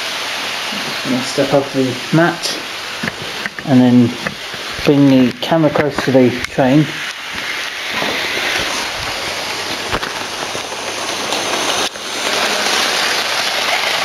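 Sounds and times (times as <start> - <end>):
model train running on track: 9.4 - 14.0.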